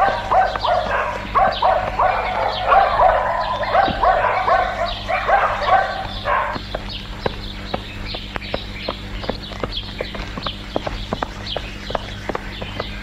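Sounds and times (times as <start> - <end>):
dog barking rapidly: 0.0 - 13.0.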